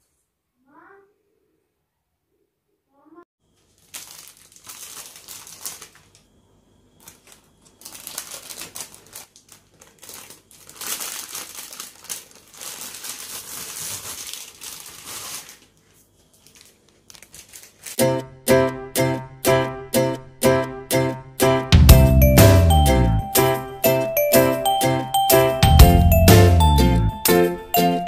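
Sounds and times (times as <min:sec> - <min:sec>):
plastic wrapper crinkling: 0:03.6 - 0:06.3, 0:07.0 - 0:18.0.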